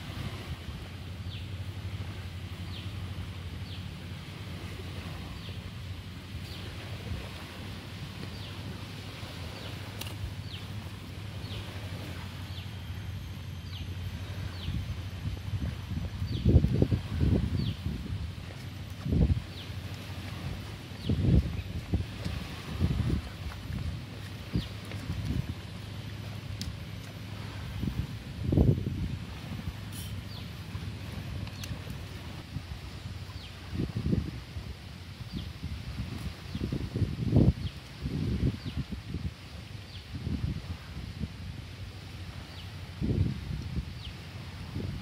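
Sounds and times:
low wind rumble: 0.0 - 45.0.

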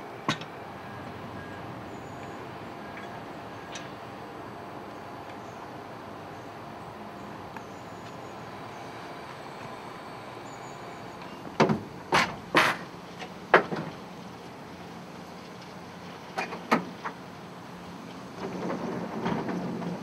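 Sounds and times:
metal clunks and knocks: 11.5 - 12.8.

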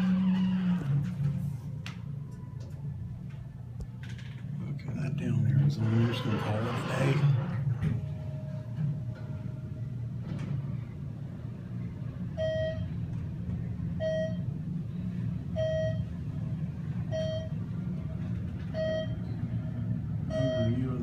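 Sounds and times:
elevator low rumble: 0.0 - 21.0
short electronic beep: 20.3 - 20.8.

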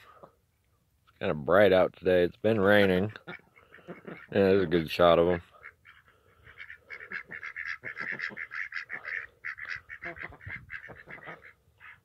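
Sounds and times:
poultry calling: 3.1 - 12.0.

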